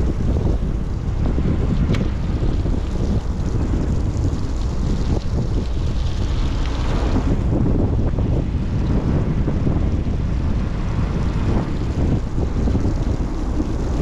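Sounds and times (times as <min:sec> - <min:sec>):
boat engine rumble: 0:00.0 - 0:14.0
rushing water: 0:00.0 - 0:14.0
wind buffeting microphone: 0:00.0 - 0:14.0.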